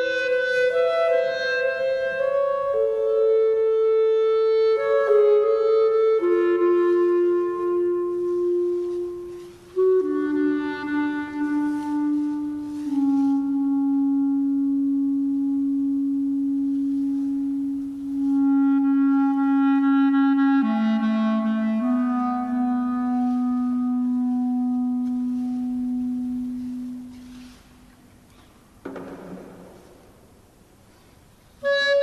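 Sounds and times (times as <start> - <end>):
clarinet long held notes: 0.0 - 28.4, 30.9 - 32.0.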